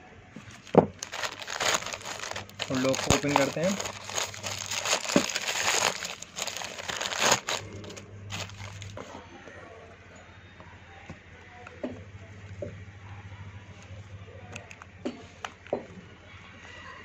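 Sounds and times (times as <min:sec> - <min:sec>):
plastic bag crinkling: 0:00.4 - 0:09.1.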